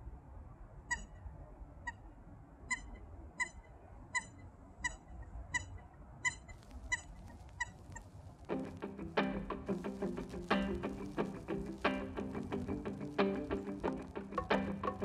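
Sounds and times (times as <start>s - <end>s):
coot squeaky calls: 0.9s - 1.2s, 2.7s - 8.1s.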